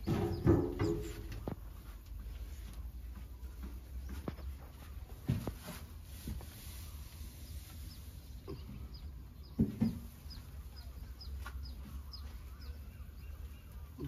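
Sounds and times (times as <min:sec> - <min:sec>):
bird chirping: 0:00.0 - 0:01.6, 0:07.2 - 0:14.0.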